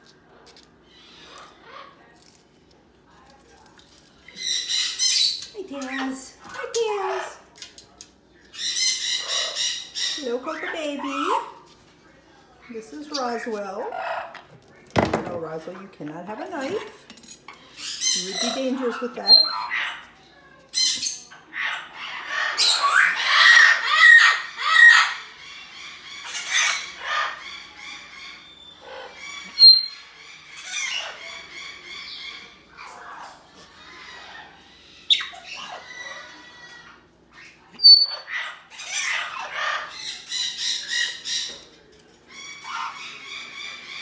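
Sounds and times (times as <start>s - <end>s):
parrot squawking and whistling: 29.5s - 30.1s, 37.4s - 39.9s.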